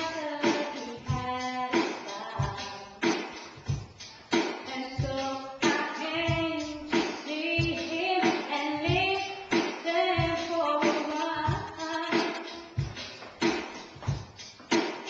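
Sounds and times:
woman singing: 0:00.0 - 0:03.4, 0:04.6 - 0:12.8.

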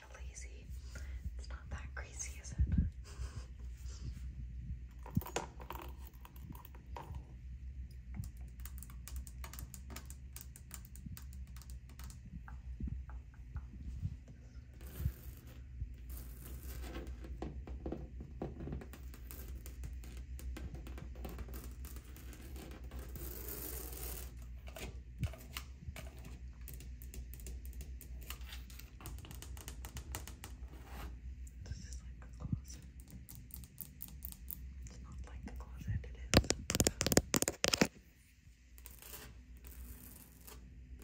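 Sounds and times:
fingernails scratching wallpaper: 0:14.8 - 0:26.8.

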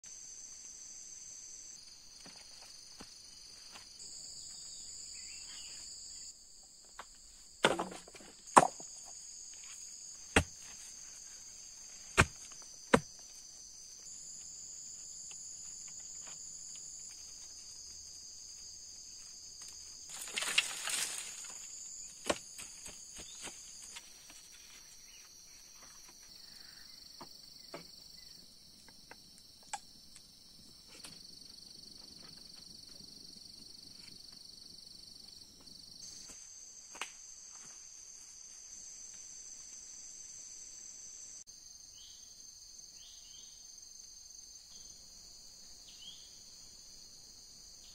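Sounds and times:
insects chirring: 0:00.0 - 0:47.9
rustle: 0:07.0 - 0:26.3.

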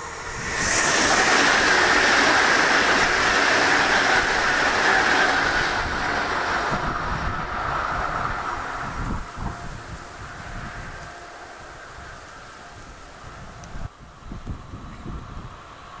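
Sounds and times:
electric train passing: 0:00.0 - 0:16.0.

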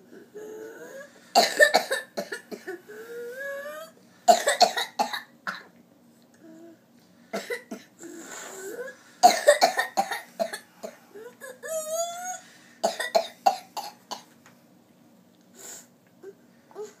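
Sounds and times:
child coughing: 0:01.4 - 0:02.8, 0:04.3 - 0:05.7, 0:07.4 - 0:07.9, 0:09.2 - 0:10.6, 0:12.8 - 0:14.2.

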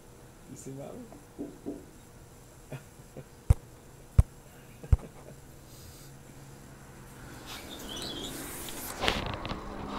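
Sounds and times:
high squeak: 0:07.6 - 0:08.5.

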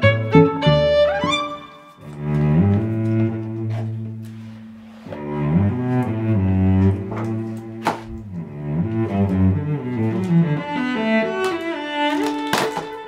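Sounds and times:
instrumental music: 0:00.0 - 0:13.0.

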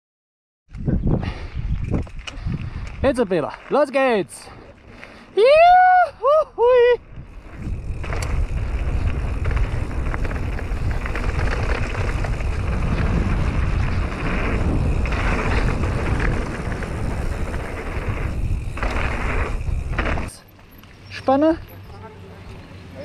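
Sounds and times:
wind rush on microphone: 0:00.7 - 0:03.2, 0:05.5 - 0:20.3
bike tyres crunching on gravel: 0:02.0 - 0:05.3, 0:07.2 - 0:23.0.

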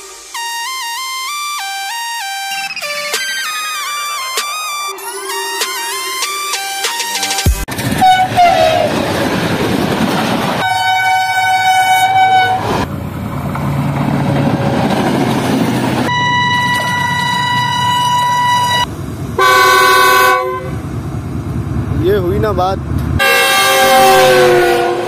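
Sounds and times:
diesel locomotives rumbling past: 0:07.7 - 0:25.0
locomotive air horn blasts: 0:08.0 - 0:08.9, 0:10.6 - 0:12.8, 0:16.1 - 0:20.8, 0:23.2 - 0:25.0.

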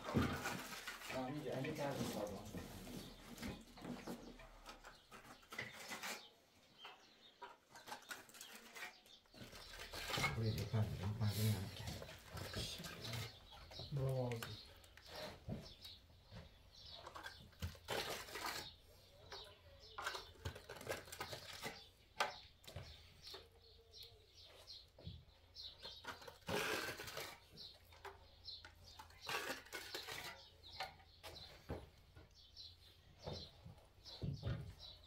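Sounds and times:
trowel scraping and tapping: 0:03.0 - 0:10.6, 0:16.9 - 0:23.4, 0:25.8 - 0:31.6.

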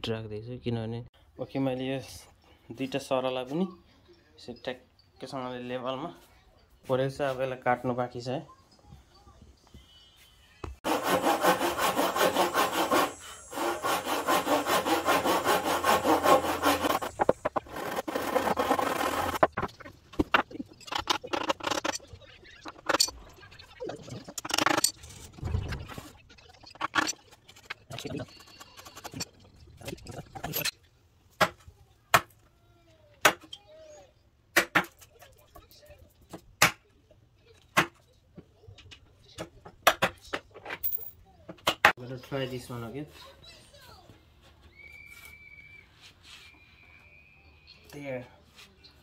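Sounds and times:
hand saw cutting wood: 0:10.8 - 0:19.5
board rustling: 0:11.0 - 0:22.0.

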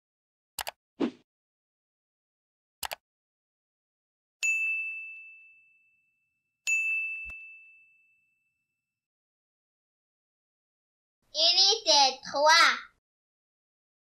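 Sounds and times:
notification bell dings: 0:04.4 - 0:08.8.

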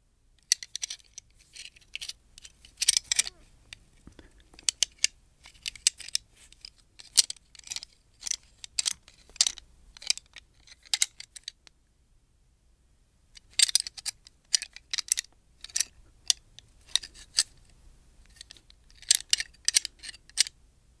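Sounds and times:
gun parts clicking and clacking: 0:00.4 - 0:03.4, 0:04.2 - 0:11.6, 0:13.4 - 0:17.5, 0:18.3 - 0:20.5.

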